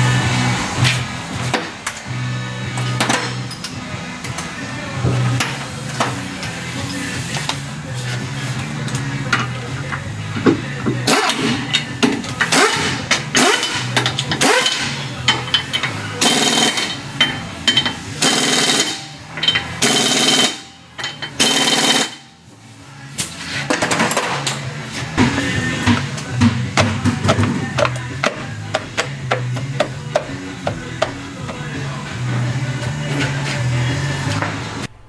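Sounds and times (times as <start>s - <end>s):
pneumatic impact wrench bursts: 12.4s - 15.0s, 16.2s - 17.0s, 18.2s - 19.1s, 19.8s - 20.6s, 21.4s - 22.2s.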